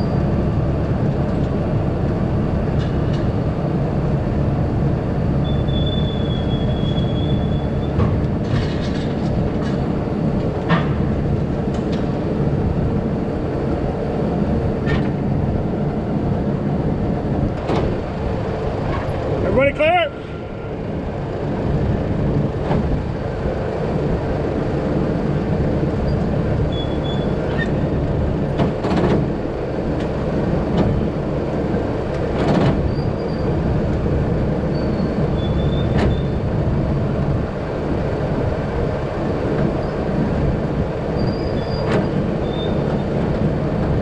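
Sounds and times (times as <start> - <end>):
diesel machinery running: 0.0 - 44.0
short high squeaks: 5.4 - 8.0, 26.1 - 27.8, 34.7 - 36.4, 41.2 - 43.0
metal clanks: 8.0 - 9.9.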